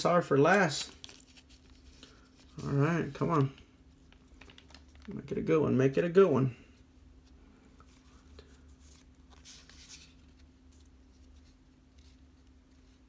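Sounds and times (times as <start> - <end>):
card pack rustling: 0.0 - 5.3.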